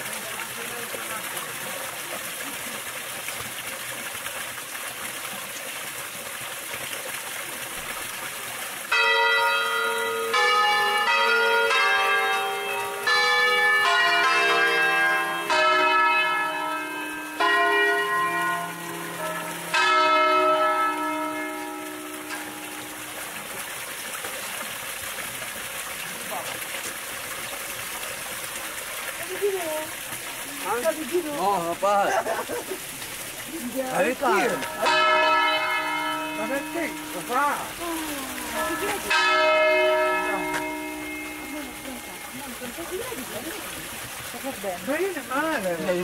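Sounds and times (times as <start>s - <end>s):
church bells ringing: 8.9s - 23.6s, 34.0s - 43.2s.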